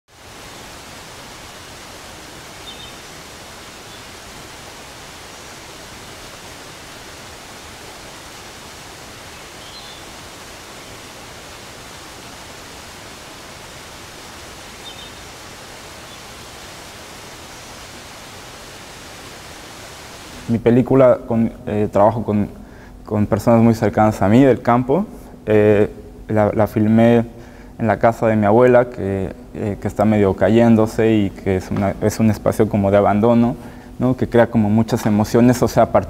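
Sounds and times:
steady rushing outdoor ambience: 0.1 - 21.0.

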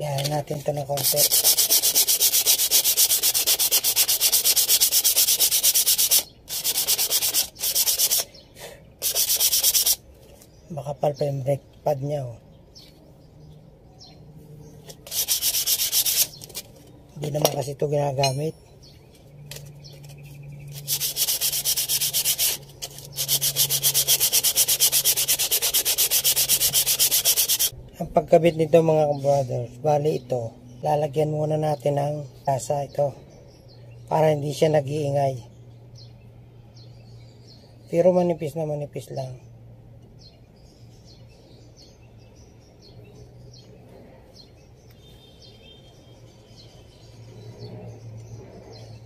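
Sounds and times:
sandpaper rasping on brake pad: 0.1 - 10.0, 14.9 - 17.4, 19.5 - 27.7.

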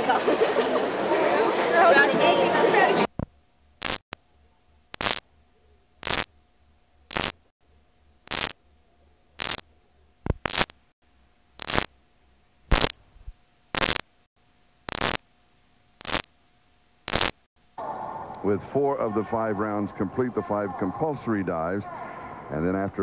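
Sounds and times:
static hiss bursts: 3.2 - 4.2, 4.9 - 5.2, 6.0 - 6.3, 7.1 - 7.4, 8.3 - 8.6, 9.4 - 9.6, 10.3 - 10.8, 11.6 - 11.9, 12.7 - 17.5
quiet tape noise: 8.0 - 11.9, 12.7 - 18.5.

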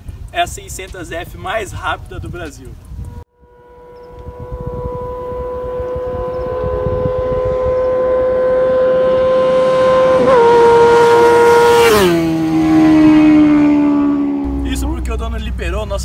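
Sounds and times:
motorcycle passing at high revs: 3.2 - 15.7.

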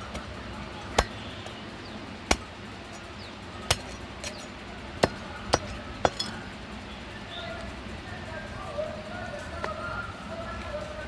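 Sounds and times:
cleaver chopping on wooden block: 0.9 - 1.2, 3.7 - 4.4, 5.0 - 6.3.

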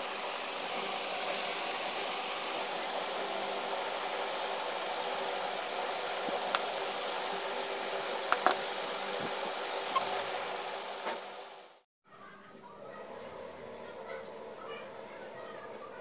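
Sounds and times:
fan-like hiss: 0.0 - 11.8.

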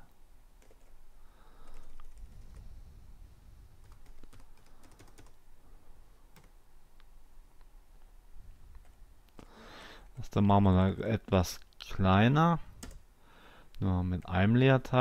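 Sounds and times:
computer keyboard typing: 0.6 - 0.9, 1.6 - 2.6, 3.8 - 5.4, 6.3 - 6.5, 12.8 - 13.0.

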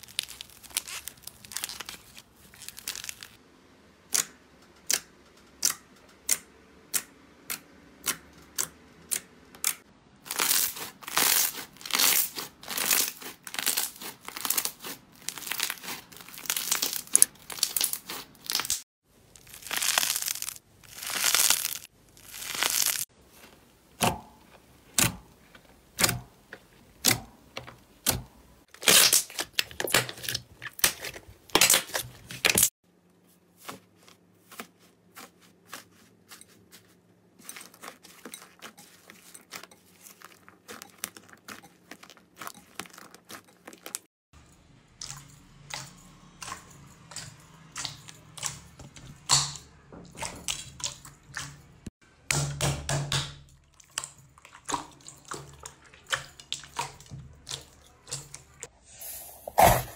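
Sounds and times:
slime squelching and popping: 0.0 - 3.4, 10.2 - 26.4, 27.0 - 32.7, 37.4 - 44.1, 45.0 - 51.7, 52.3 - 58.7.

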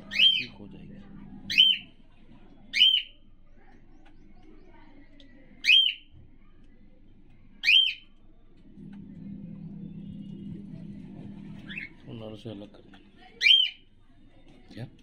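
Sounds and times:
cockatiel whistling: 0.0 - 0.6, 1.5 - 1.9, 7.6 - 8.0, 11.6 - 12.1, 13.4 - 13.8.

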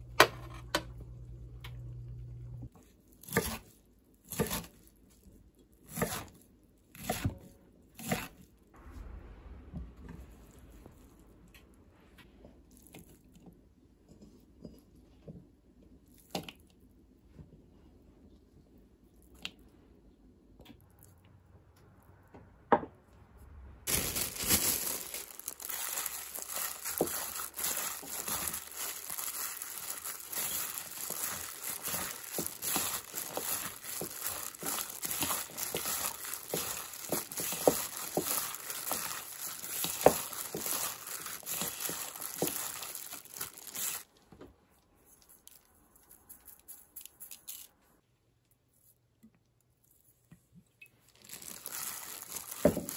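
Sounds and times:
greens squishing: 23.9 - 44.1, 51.1 - 52.9
plastic glove crinkling: 23.9 - 44.2, 45.0 - 47.8, 51.0 - 52.9.

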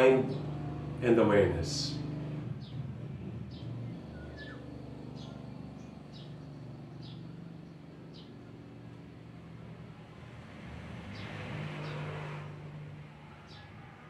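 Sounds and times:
low engine hum: 0.0 - 14.0
bird chirping: 3.5 - 8.8.

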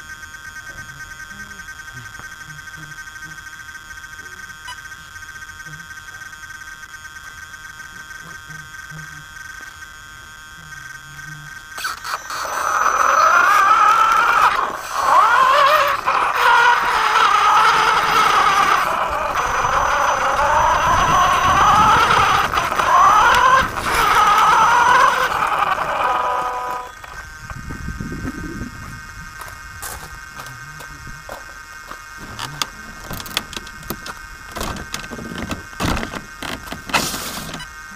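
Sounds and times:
electric motor and gears whining: 0.0 - 37.9
tyres scraping over gravel: 12.6 - 27.4.

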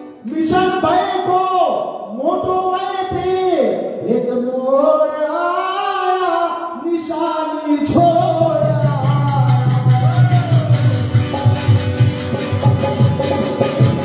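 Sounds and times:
man singing: 2.2 - 10.7
hand drum beat: 8.6 - 14.0.

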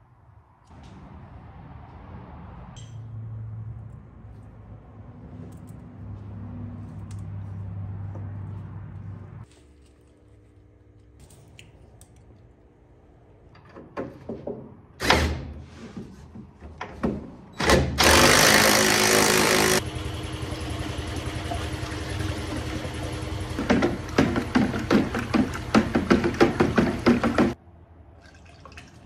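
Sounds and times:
liquid pouring into a bucket: 21.2 - 24.1, 28.2 - 29.0.

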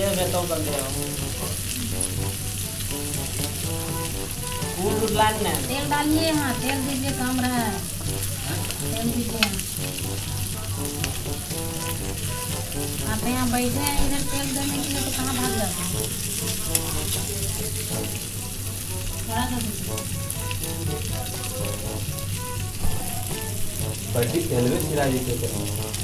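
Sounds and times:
pitched wavering sounds: 0.0 - 18.4
fish sizzling in oil: 0.0 - 26.0.

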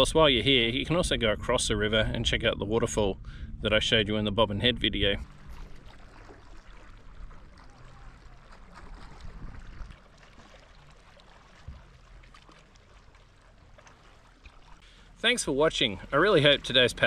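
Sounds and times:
low rumble: 0.0 - 10.2
water trickling and lapping: 5.0 - 17.0
small splashes: 5.2 - 17.0.

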